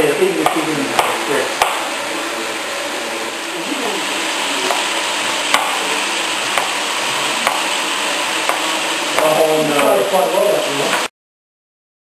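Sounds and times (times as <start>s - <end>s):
steady hiss: 0.0s - 11.1s
knife chopping on cutting board: 0.4s - 1.9s, 5.5s - 5.8s, 6.5s - 6.8s, 8.5s - 9.3s.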